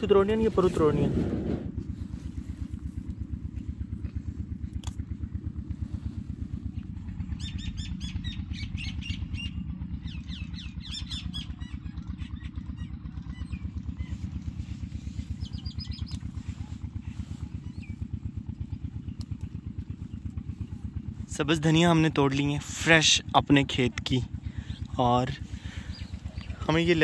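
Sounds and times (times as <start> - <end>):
engine running with low thudding: 0.0 - 27.0
birds chirping: 6.0 - 27.0.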